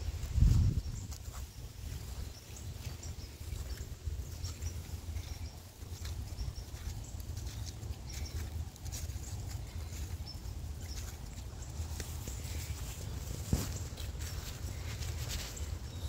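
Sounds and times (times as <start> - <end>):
low rumble on microphone: 0.0 - 1.2
footsteps crunching through dry leaves: 0.0 - 16.0.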